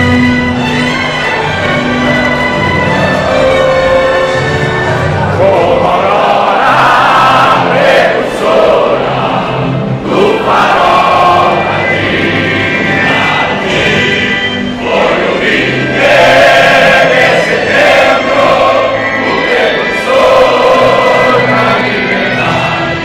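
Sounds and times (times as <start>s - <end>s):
stadium crowd singing a chant: 5.2s - 23.0s.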